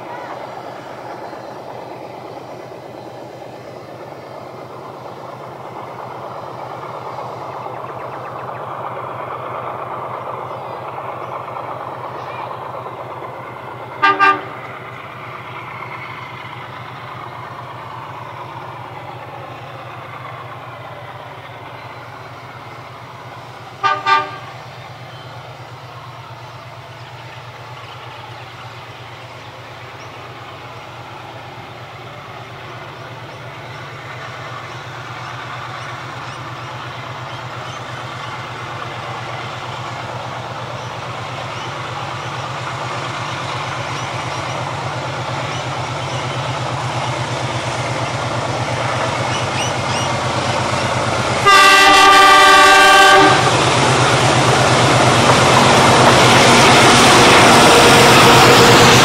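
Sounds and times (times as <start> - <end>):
diesel locomotive engine drone: 0.0 - 59.0
locomotive horn toots: 13.9 - 14.7, 23.8 - 24.6, 51.4 - 53.6.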